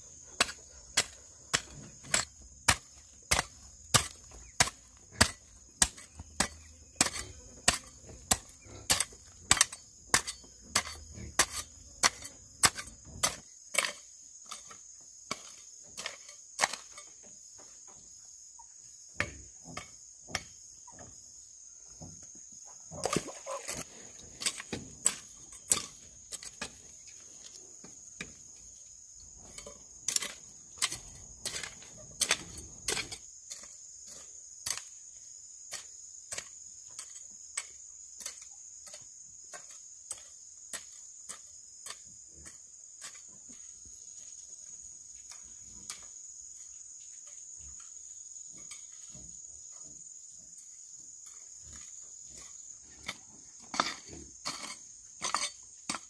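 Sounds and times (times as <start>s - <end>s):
high drone of insects: 0.0s - 56.0s
hoe chopping into soil: 0.3s - 17.1s, 22.9s - 27.2s, 29.4s - 35.0s.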